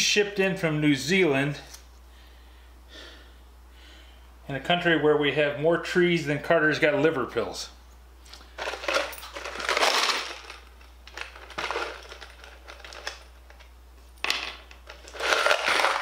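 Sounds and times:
rustling and scraping handling noise: 7.9s - 16.0s.

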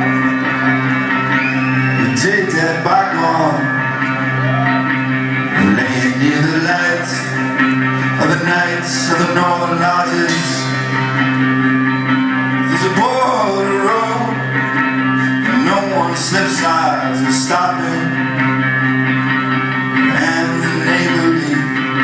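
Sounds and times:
live rock band playing: 0.0s - 22.0s
man singing: 1.9s - 4.0s, 5.4s - 11.1s, 12.6s - 18.6s, 20.0s - 22.0s.

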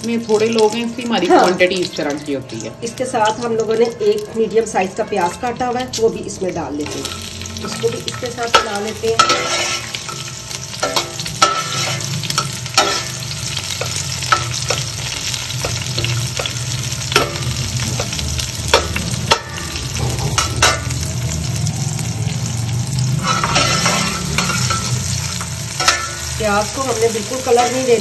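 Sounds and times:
onions sizzling in hot oil: 0.0s - 28.0s
metal spatula clinking against pot: 6.8s - 10.2s, 10.8s - 21.0s, 25.8s - 26.4s.

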